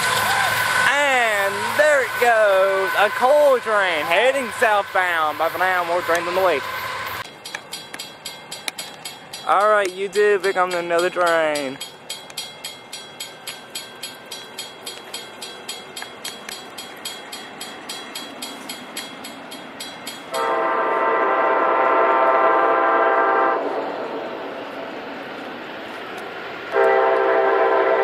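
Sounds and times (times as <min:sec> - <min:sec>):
crossing warning bell dinging: 0:00.0 - 0:23.8
train rumbling: 0:00.0 - 0:28.0
train horn: 0:20.3 - 0:23.8, 0:26.7 - 0:28.0.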